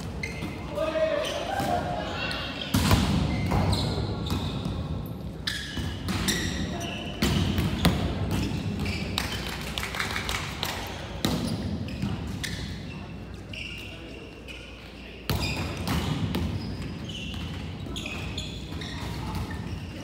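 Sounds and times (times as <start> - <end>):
shoe squeaks or calls: 0.2 - 2.7, 5.4 - 9.1, 11.5 - 15.8, 16.6 - 20.0
volleyballs slapping and thudding: 2.7 - 12.4, 15.3 - 17.8.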